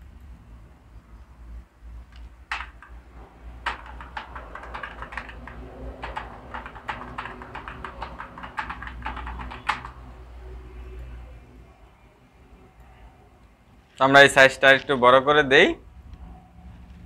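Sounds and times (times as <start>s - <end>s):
keyboard typing: 2.1s - 10.2s.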